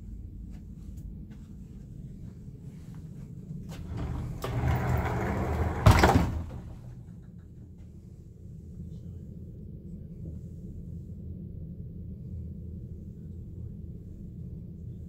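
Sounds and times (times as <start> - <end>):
wardrobe door scraping open: 3.8 - 7.0.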